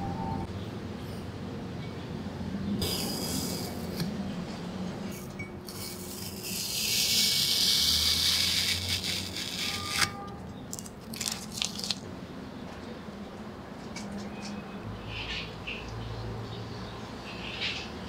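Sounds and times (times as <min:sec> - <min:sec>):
blade scraping metal: 0:05.2 - 0:10.3.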